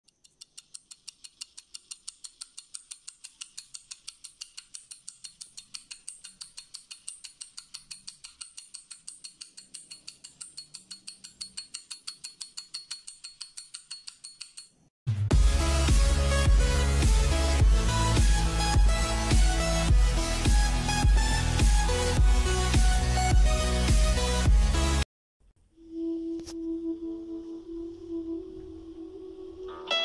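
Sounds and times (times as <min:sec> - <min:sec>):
clock ticking quickly: 0:00.1 - 0:14.8.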